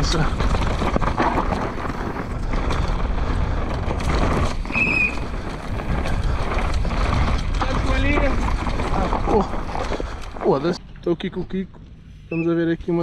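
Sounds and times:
knocks over bumps: 0.0 - 4.6
bike rattling: 0.0 - 13.0
bike tyres rumbling on dirt: 0.0 - 13.0
brief high squeak: 12.3 - 12.6.

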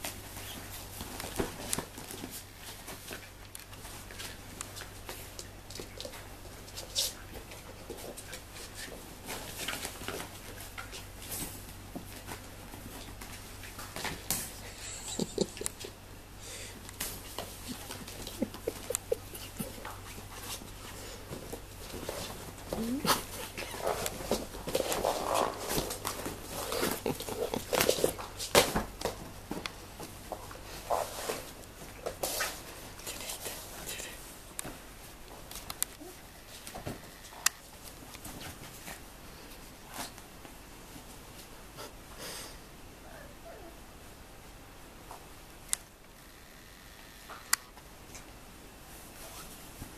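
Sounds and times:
puppy paws scuffling on floor: 0.0 - 16.0, 16.7 - 41.9, 47.8 - 49.9
puppy paws scratching and knocking: 17.0 - 33.6.

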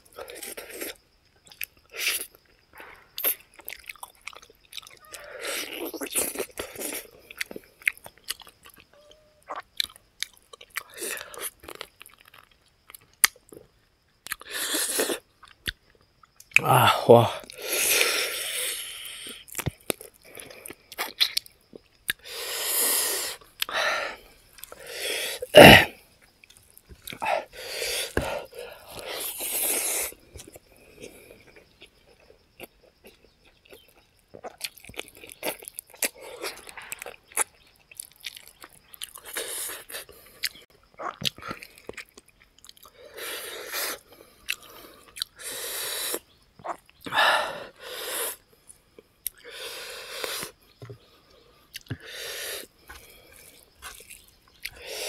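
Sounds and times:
chewing with wet lip-smacking: 0.2 - 2.4, 3.2 - 16.6, 26.4 - 27.2, 30.4 - 43.0, 43.7 - 45.4, 51.7 - 52.1, 52.8 - 54.8.

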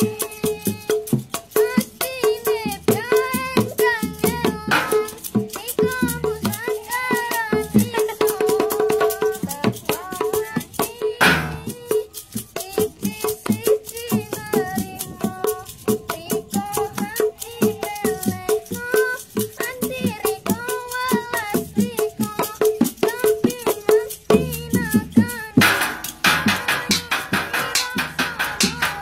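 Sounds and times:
fast hand drumming: 0.0 - 29.0
rattling percussion: 0.0 - 29.0
person singing melody: 1.8 - 13.9, 21.1 - 29.0.

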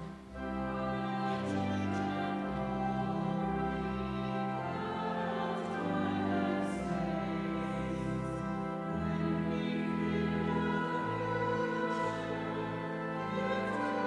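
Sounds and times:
slow hymn music: 0.0 - 14.0.

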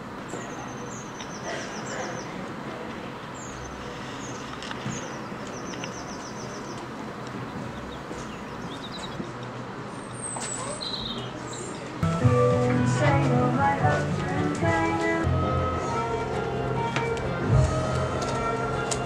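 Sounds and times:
songbirds chirping: 0.0 - 12.0
outdoor background hum: 0.0 - 19.0.

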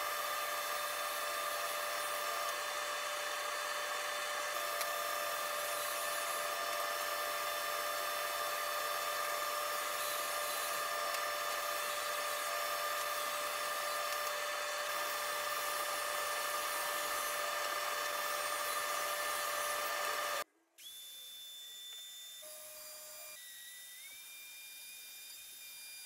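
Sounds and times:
table saw cutting plywood: 0.0 - 20.4
router whining: 0.0 - 26.0.

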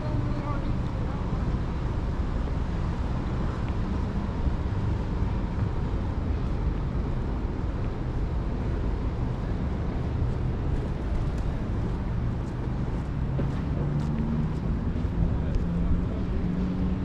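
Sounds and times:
low rumble of vehicle noise: 0.0 - 17.0.

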